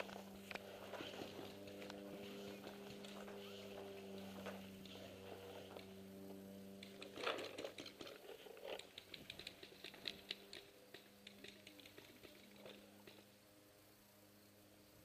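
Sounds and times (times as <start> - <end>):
faint steady hum: 0.0 - 15.0
light irregular clicks: 6.7 - 13.4.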